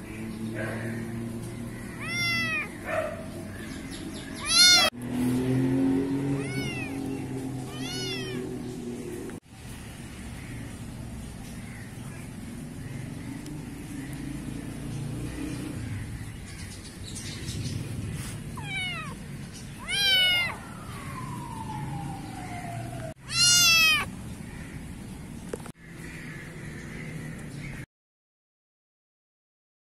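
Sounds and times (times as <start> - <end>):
kitten meowing: 2.0 - 2.8, 4.4 - 4.9, 6.4 - 8.5, 18.6 - 19.2, 19.8 - 20.6, 23.2 - 24.1.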